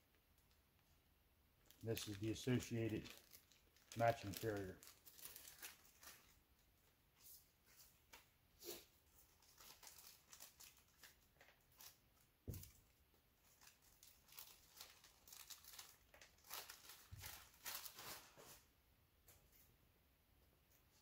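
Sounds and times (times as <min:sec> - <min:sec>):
plastic packets crinkling and tearing: 0:01.6 - 0:06.6, 0:09.1 - 0:18.4.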